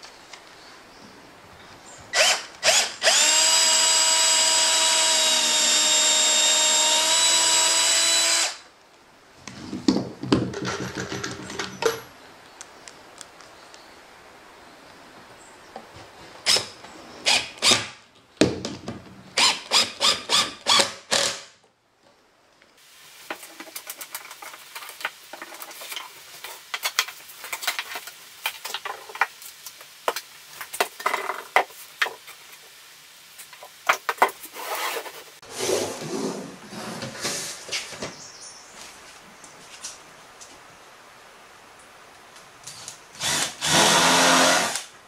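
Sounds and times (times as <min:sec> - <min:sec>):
cordless drill driving screws: 0:02.2 - 0:08.6, 0:43.2 - 0:44.9.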